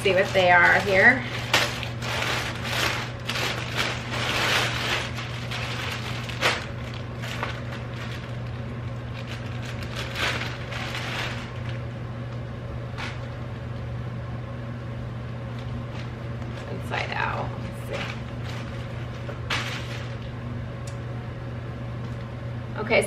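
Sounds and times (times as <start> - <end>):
plastic packaging crinkling: 0.0 - 13.4, 15.5 - 20.4
steady low hum: 0.0 - 23.0.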